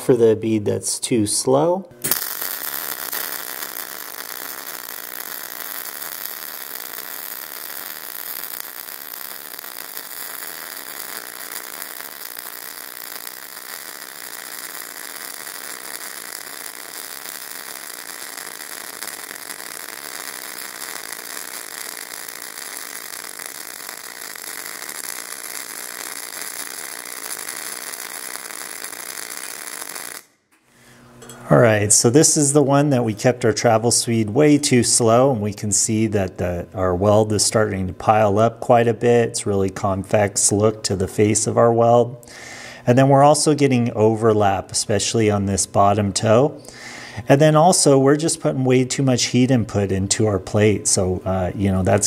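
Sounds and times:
welding arc crackling: 2.0 - 30.5.

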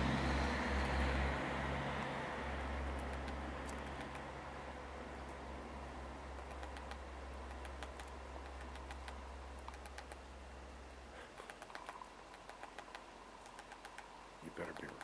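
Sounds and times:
low steady hum: 0.0 - 15.0
woodpecker tapping tree bark: 2.9 - 4.5, 6.2 - 10.5, 11.2 - 15.0.

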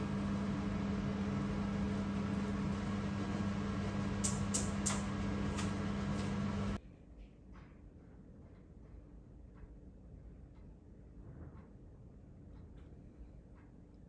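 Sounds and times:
kitchen appliance humming: 0.0 - 6.8.

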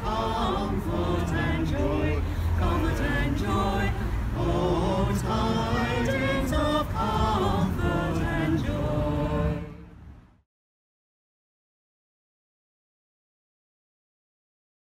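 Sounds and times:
group singing in harmony: 0.0 - 10.1.

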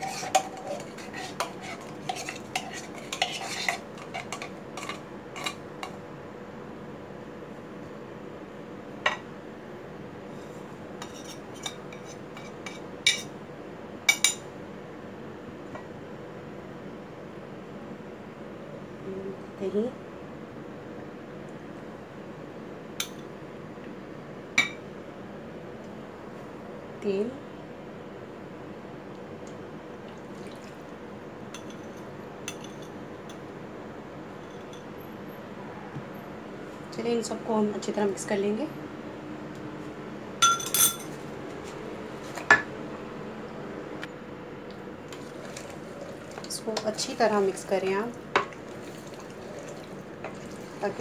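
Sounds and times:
dishes clinking: 40.4 - 41.2
oil pouring into a pot: 48.5 - 50.9.

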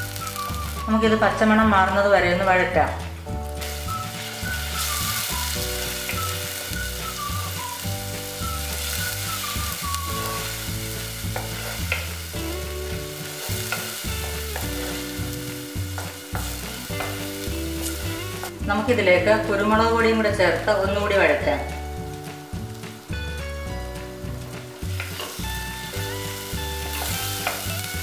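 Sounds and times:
spice paste sizzling in oil: 0.0 - 2.0, 3.2 - 28.0
soft background music: 0.0 - 28.0.

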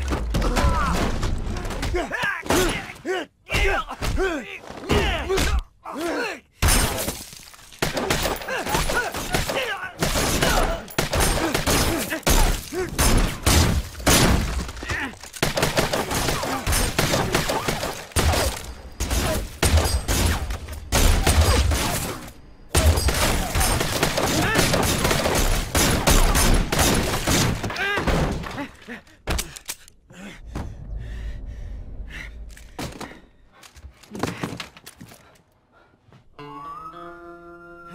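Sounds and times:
glass shattering and debris: 6.6 - 15.5
gunshots: 7.8 - 28.5.

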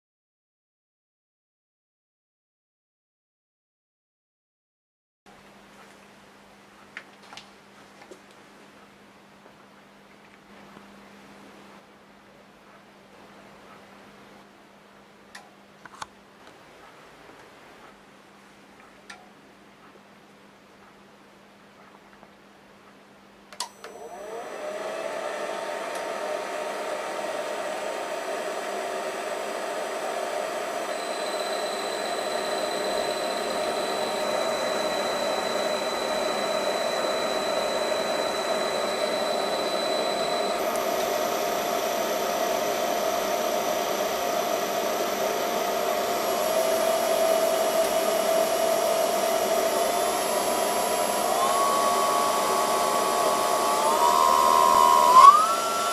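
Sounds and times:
spindle motor whirring: 30.5 - 55.9.

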